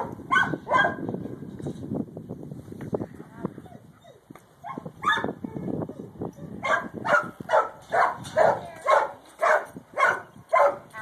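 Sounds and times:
dog barking: 0.0 - 1.0, 4.7 - 5.3, 6.6 - 10.9.

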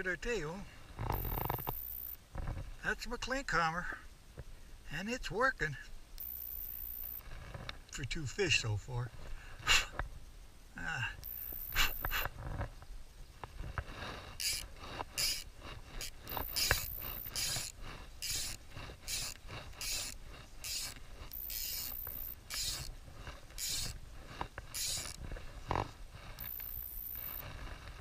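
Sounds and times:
fly reel ratchet buzzing: 1.1 - 2.2, 6.2 - 7.2, 11.2 - 12.2, 14.4 - 22.9, 23.5 - 24.0, 24.7 - 25.8, 26.4 - 27.4.

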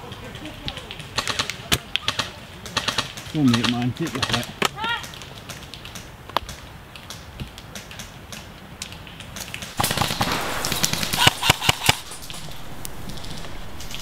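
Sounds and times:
airsoft gun shots: 9.8 - 13.5
loud hiss: 9.8 - 14.0.

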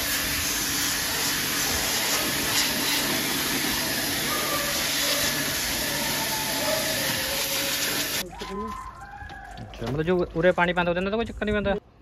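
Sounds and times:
pressure washer spraying water: 0.0 - 8.2.

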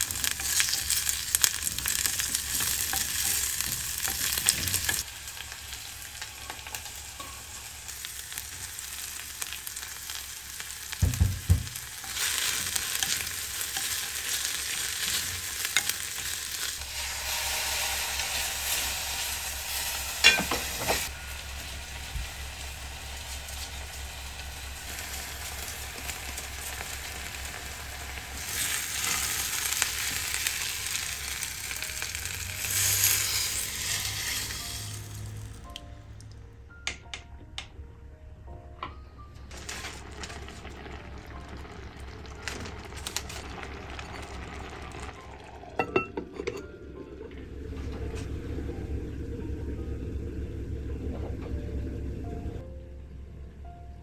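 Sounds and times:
food sizzling in oil: 0.0 - 35.6, 39.6 - 46.1.

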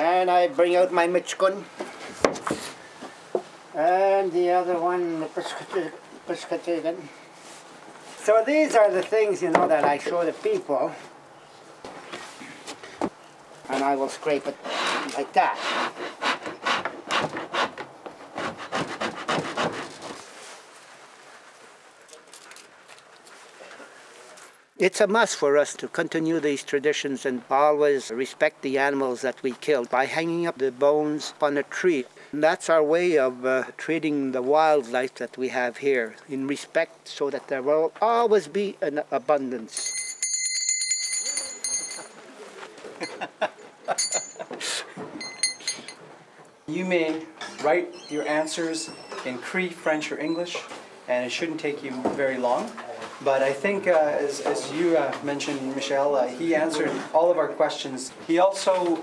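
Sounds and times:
tool scraping animal hide: 14.5 - 20.3
metallic jingling: 39.7 - 42.2, 44.0 - 44.6, 45.2 - 46.0.

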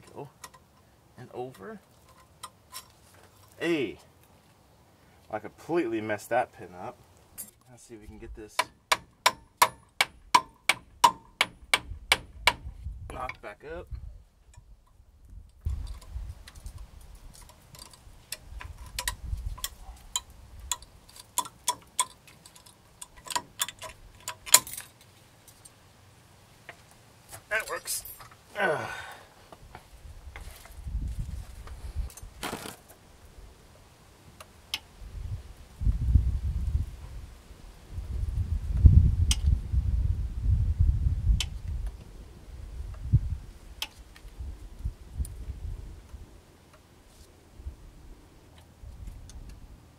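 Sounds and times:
hand tool clicks: 17.8 - 24.9.

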